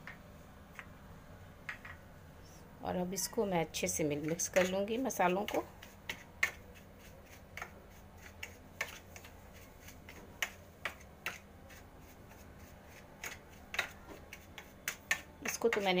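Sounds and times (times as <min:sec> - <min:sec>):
metal spoon scraping a bowl: 0:04.0 - 0:09.2.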